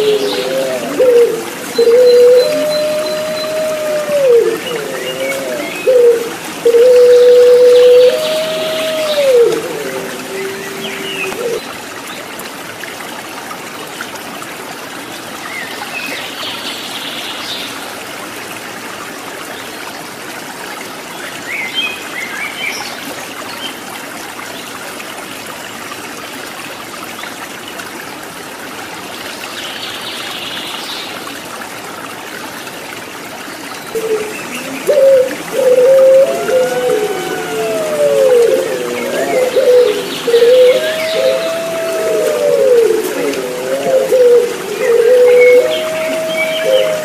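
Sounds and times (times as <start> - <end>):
dove cooing: 0.0 - 11.6, 34.0 - 47.0
stream water trickling: 0.0 - 47.0.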